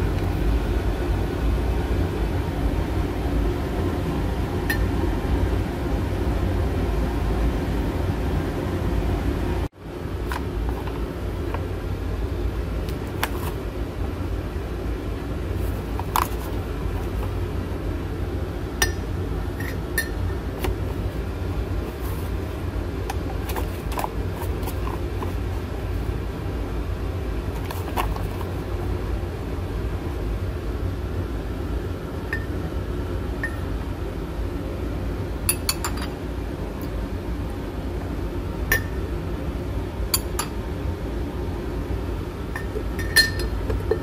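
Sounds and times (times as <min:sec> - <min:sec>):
low mechanical hum: 0:00.0 - 0:44.0
metal spoon clinking on glass jar: 0:42.6 - 0:43.6.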